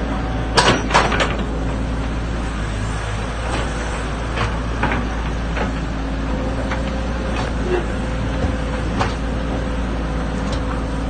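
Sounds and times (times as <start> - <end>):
excavator diesel engine running: 0.0 - 11.0
sharp metallic knocks: 0.6 - 1.5.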